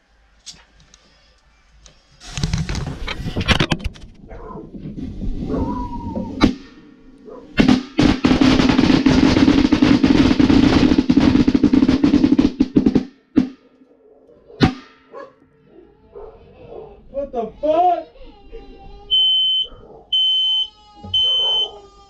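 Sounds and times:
firecrackers bursting in a pot: 7.6 - 13.2.

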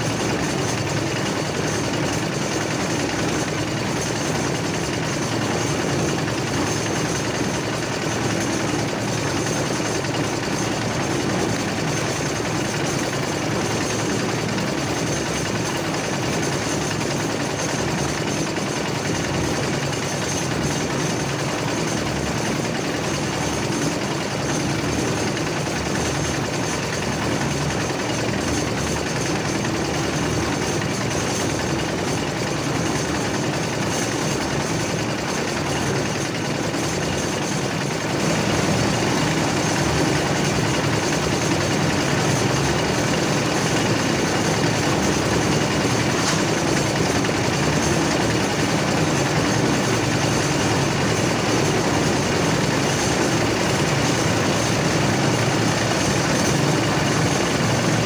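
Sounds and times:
concrete mixer engine running: 0.0 - 58.0.

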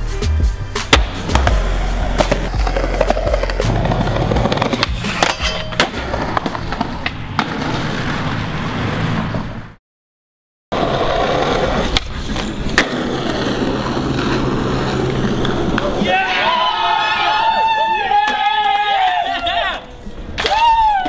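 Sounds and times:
skateboard wheels rolling on concrete: 0.7 - 9.8, 10.7 - 21.0
skateboard popping and landing: 0.8 - 9.5, 10.8 - 16.0.

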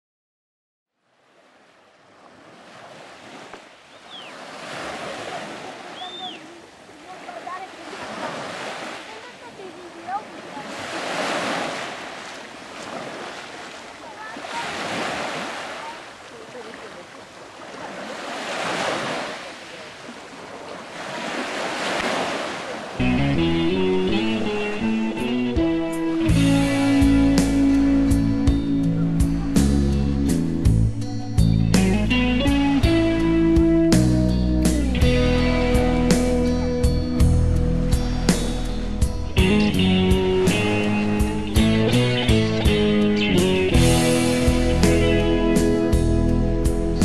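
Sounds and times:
sea waves washing in: 1.1 - 28.5, 35.0 - 47.0
short high calls: 5.9 - 6.6
guitar music: 23.0 - 47.0.

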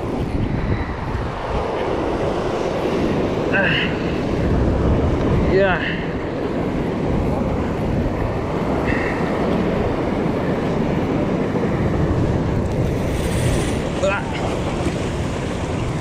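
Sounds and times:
wind buffeting microphone: 0.0 - 16.0
surf washing against rocks: 1.1 - 16.0.

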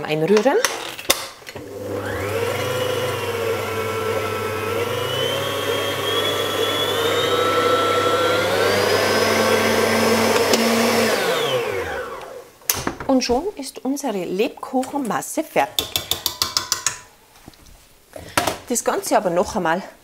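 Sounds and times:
stand mixer motor whine: 1.6 - 12.4
beater stirring batter: 1.7 - 11.7.

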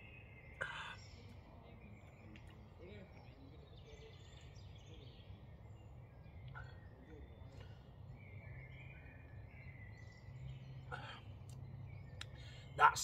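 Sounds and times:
distant bird chirps: 0.0 - 13.0
faint woodland ambience: 0.0 - 13.0.

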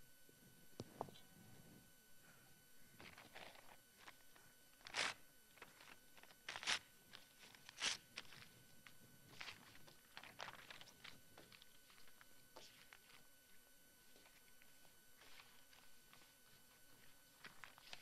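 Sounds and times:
paper rustling: 3.0 - 13.3, 14.1 - 18.0.

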